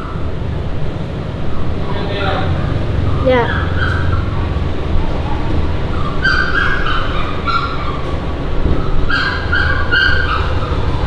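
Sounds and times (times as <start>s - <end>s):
steady low rumble: 0.0s - 11.0s
baby monkey crying: 2.2s - 11.0s.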